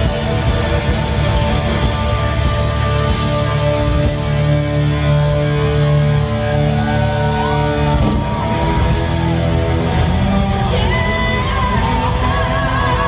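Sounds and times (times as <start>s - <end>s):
electric guitar: 0.0s - 13.0s.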